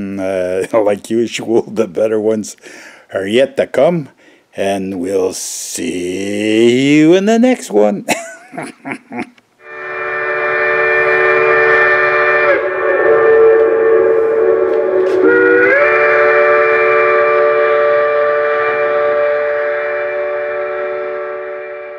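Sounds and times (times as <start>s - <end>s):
steam train whistle: 9.6s - 21.9s.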